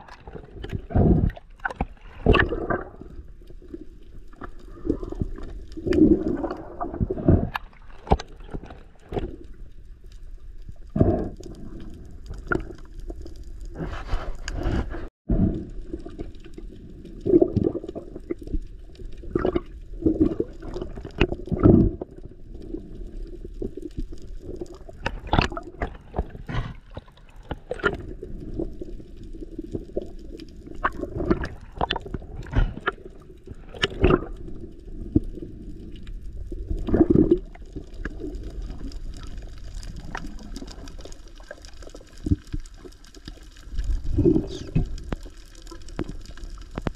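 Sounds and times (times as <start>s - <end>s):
underwater water swishing: 0.0s - 46.9s.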